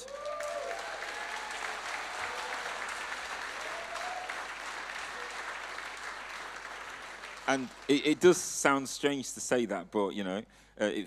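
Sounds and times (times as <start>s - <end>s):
congregation applauding: 0.0s - 8.8s.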